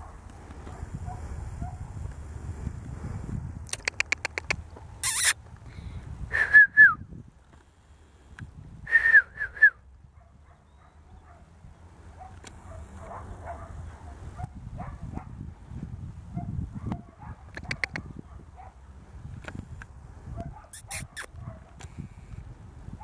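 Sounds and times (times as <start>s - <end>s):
puppy yipping: 3.8s - 5.4s, 20.5s - 21.6s.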